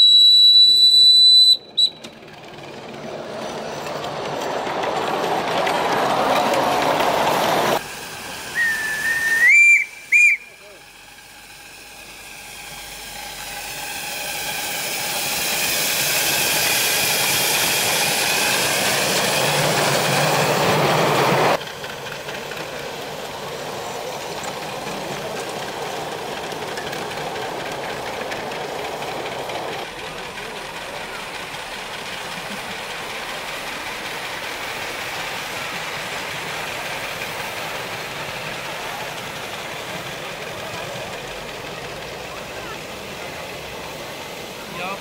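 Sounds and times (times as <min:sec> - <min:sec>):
steam whistle: 0:00.0 - 0:02.1, 0:08.4 - 0:10.7
steam locomotive hiss and running: 0:00.0 - 0:45.0.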